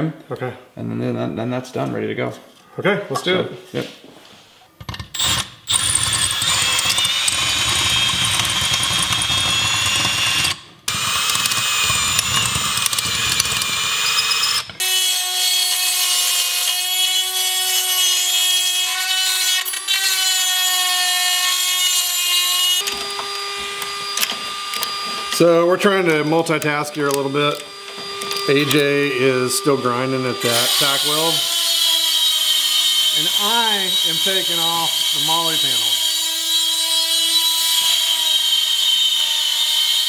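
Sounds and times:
cordless drill drilling metal: 5.1 - 17.4, 21.6 - 40.0.

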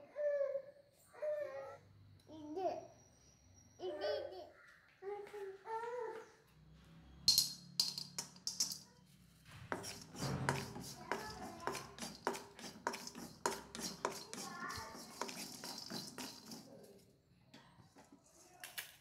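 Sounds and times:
pieces dropped into metal pan: 7.3 - 8.9
wooden spatula scraping a pan: 9.6 - 17.0.

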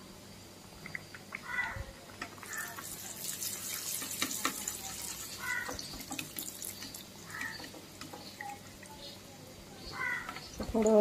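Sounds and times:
pastries sizzling in hot oil: 2.4 - 9.3.

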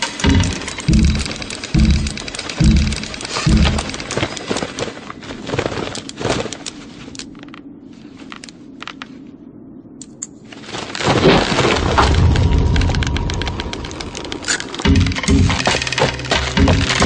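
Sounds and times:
knitting needles clicking: 0.0 - 4.9, 5.9 - 7.6, 10.0 - 10.4
rushing noise with deep rumble: 10.8 - 16.0.

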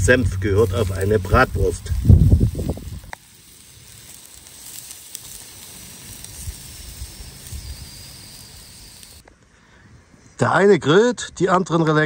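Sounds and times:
sausages sizzling on grill: 0.0 - 9.2.

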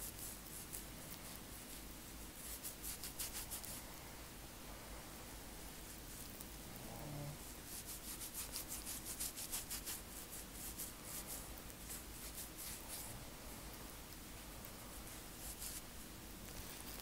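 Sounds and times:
fingertips scratching scalp: 0.0 - 3.8, 5.7 - 13.2, 14.7 - 17.0.

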